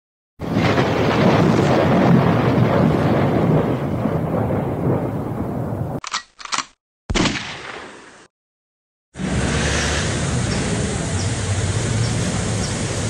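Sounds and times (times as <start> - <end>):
loud rumbling noise: 0.4 - 5.8, 9.2 - 13.0.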